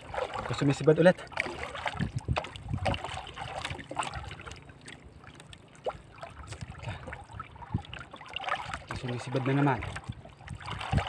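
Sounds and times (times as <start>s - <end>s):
water lapping against boat hull: 0.0s - 11.0s.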